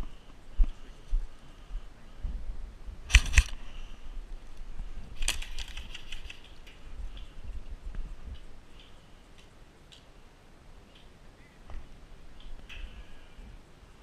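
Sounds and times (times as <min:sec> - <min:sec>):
airsoft rifle firing clacks: 0:03.1 - 0:03.6.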